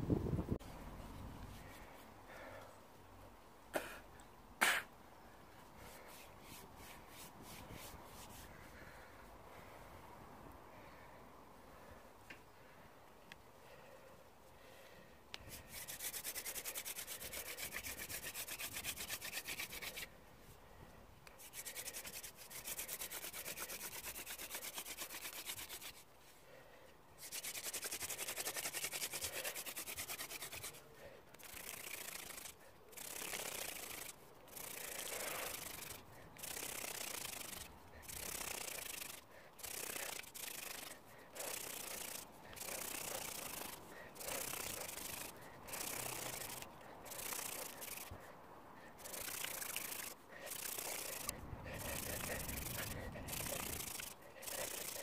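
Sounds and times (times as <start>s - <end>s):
hand drill grinding into wood: 31.4s - 48.2s, 49.0s - 55.0s.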